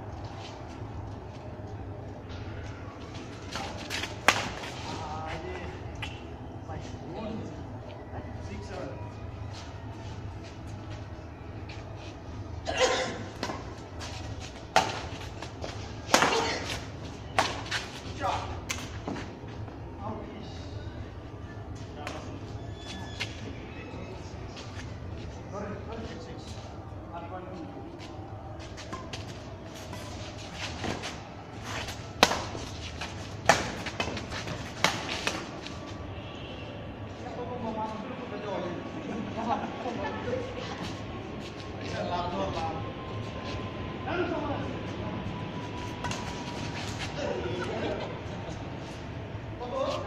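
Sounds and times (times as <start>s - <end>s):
steady low hum: 0.0s - 50.0s
rackets striking shuttlecock: 3.6s - 4.8s, 14.7s - 18.0s, 31.7s - 35.5s.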